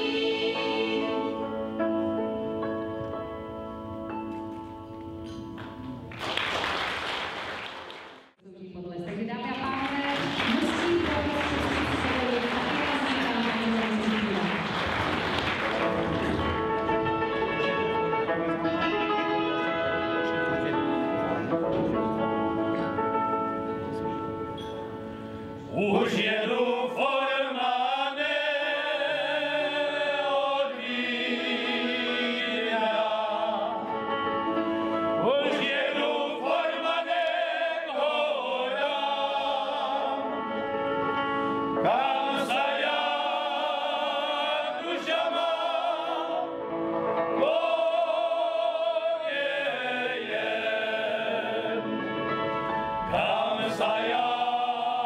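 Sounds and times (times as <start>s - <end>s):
male folk choir singing: 0.0s - 1.8s, 25.6s - 34.3s, 35.0s - 40.8s, 41.7s - 52.2s, 52.9s - 55.0s.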